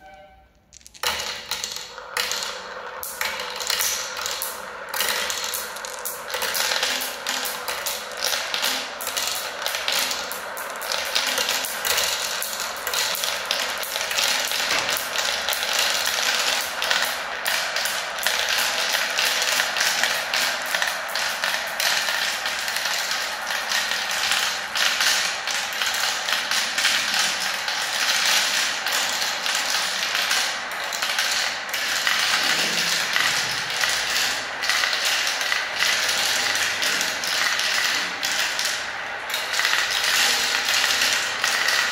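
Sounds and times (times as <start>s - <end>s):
marbles clattering in plastic run: 0.7s - 41.9s.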